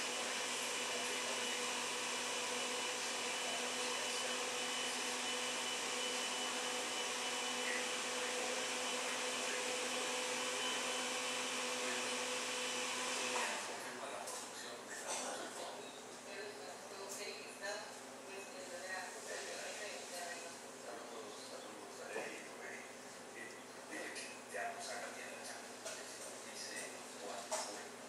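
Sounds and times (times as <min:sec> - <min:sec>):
machine hum with whine: 0:00.0 - 0:14.0.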